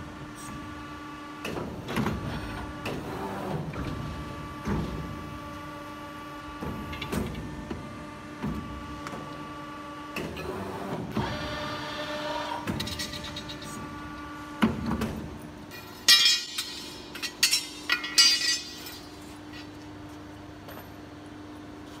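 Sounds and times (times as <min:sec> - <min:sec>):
sharp metallic clanks: 0:15.9 - 0:19.1.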